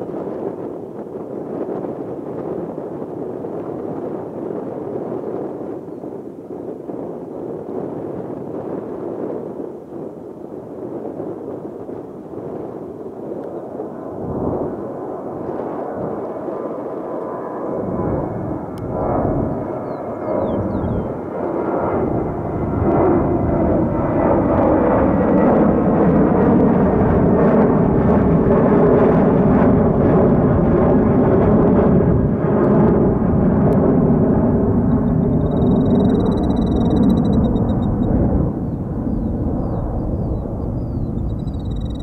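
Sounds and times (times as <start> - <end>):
jet engines rumbling: 0.0 - 42.0
bird calling: 35.0 - 38.0, 40.2 - 42.0.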